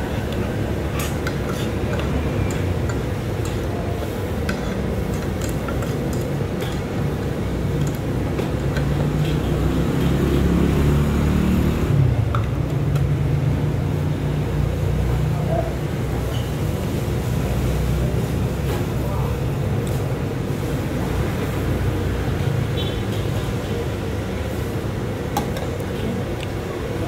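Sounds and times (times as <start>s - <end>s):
street traffic rumble: 0.0s - 27.0s
vehicle passing close: 9.4s - 12.2s.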